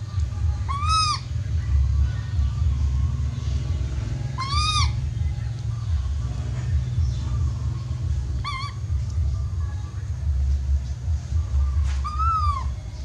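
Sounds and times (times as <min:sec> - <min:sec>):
steady low rumble: 0:00.0 - 0:13.0
baby monkey crying: 0:00.6 - 0:01.4, 0:04.3 - 0:05.1, 0:08.3 - 0:09.0, 0:12.0 - 0:12.8.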